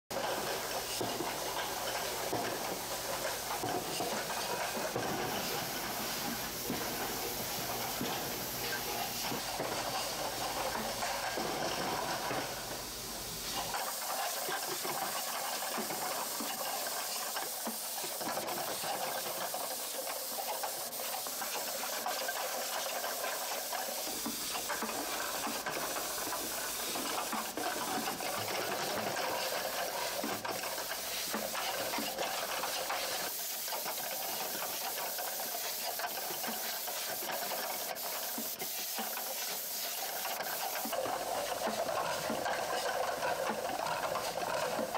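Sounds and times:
air hiss: 0.2 - 44.9
machine running: 40.0 - 44.9.

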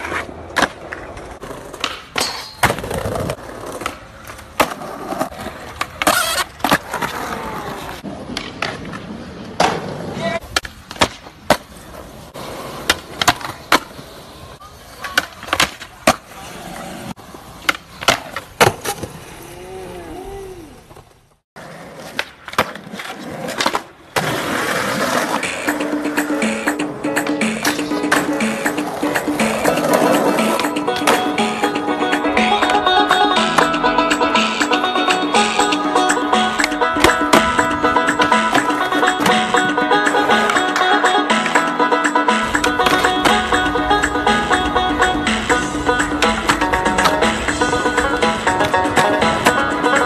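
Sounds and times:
skateboard trucks scraping ledges: 0.0 - 19.9, 20.7 - 26.8, 27.4 - 41.7, 42.3 - 50.0
skateboard wheels rolling on concrete: 0.0 - 50.0
skateboard landing cracks: 10.5 - 11.8, 17.6 - 19.2
skateboard tail popping: 22.1 - 50.0.

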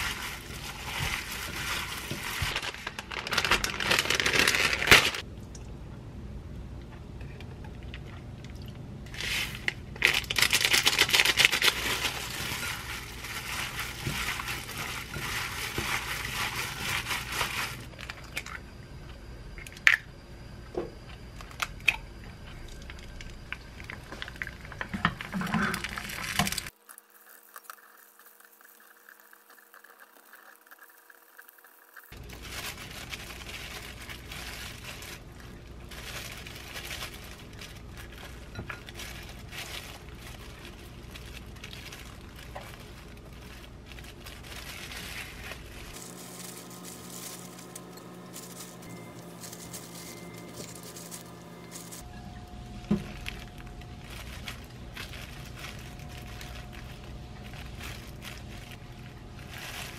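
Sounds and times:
plastic glove crinkling: 0.0 - 5.3, 9.1 - 18.3, 22.9 - 26.8, 32.1 - 59.9
faint steady hum: 0.0 - 31.2, 32.0 - 59.9.

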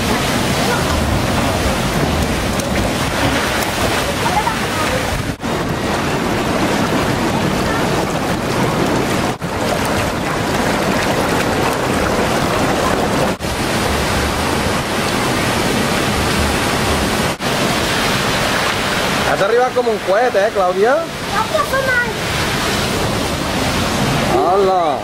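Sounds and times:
wind on microphone: 0.0 - 19.2
bubbling whirlpool: 0.0 - 25.0
water rushing down a water slide: 0.0 - 25.0.

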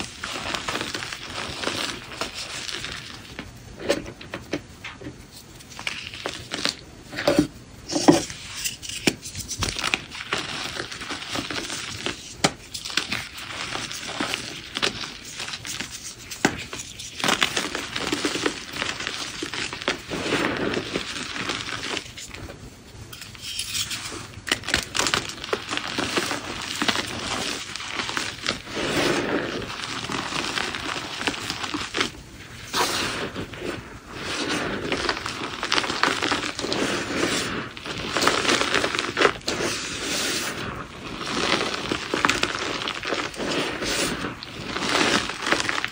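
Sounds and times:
chalk crunching by hand: 0.0 - 4.0, 5.3 - 22.5, 23.1 - 45.9.

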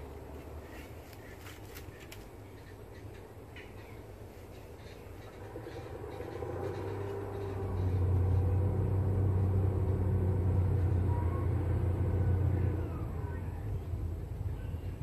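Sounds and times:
passing motor engine drone: 4.8 - 15.0.

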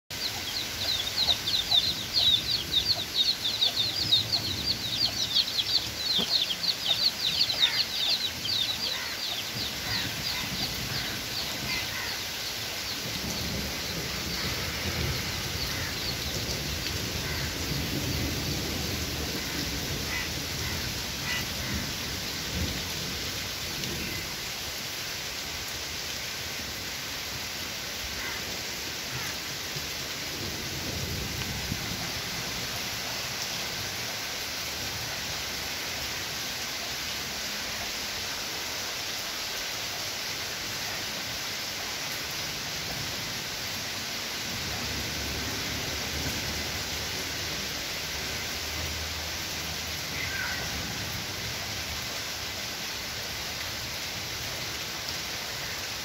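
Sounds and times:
birds chirping: 0.1 - 23.0
steady rain: 0.1 - 56.0
low rumble of thunder: 12.9 - 24.4, 30.3 - 32.9.

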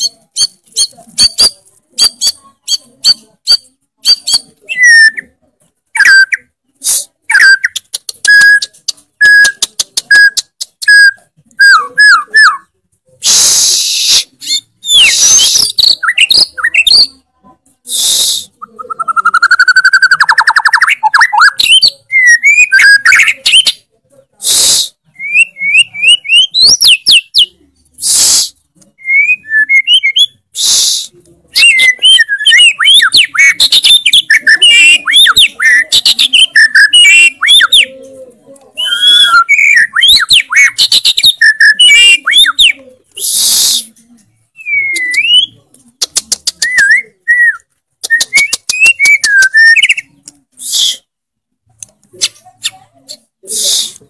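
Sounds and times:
bird singing whistles and trills: 18.6 - 23.8, 25.2 - 27.5, 29.0 - 30.4, 31.6 - 37.9, 38.8 - 42.8, 44.6 - 45.6, 46.6 - 50.1.

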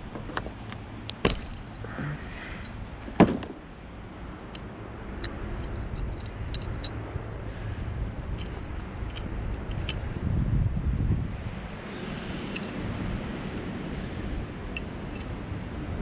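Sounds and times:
metal bracket clanking: 0.0 - 3.8
light clicks of handling: 4.4 - 10.9.

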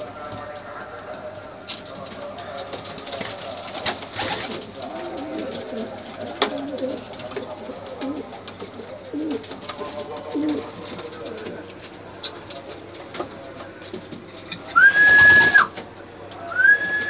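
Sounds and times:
pigeons cooing: 3.4 - 12.8.

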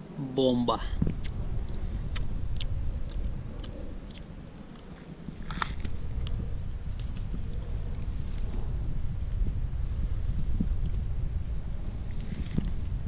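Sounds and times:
wind rumble on microphone: 0.0 - 13.0
clicks and rustles of bushes: 1.0 - 9.6, 12.0 - 13.0.

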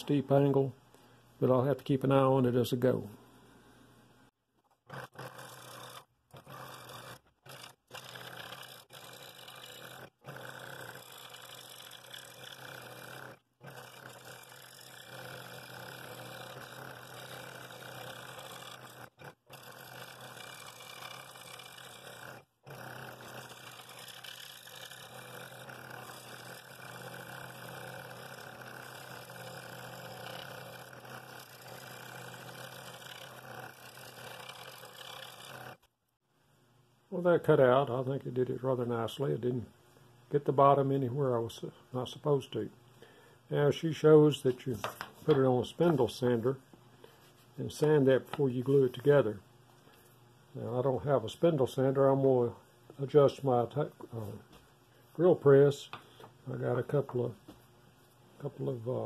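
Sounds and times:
scroll saw buzzing: 4.7 - 35.9
saw blade rasping through wood: 4.9 - 35.8.

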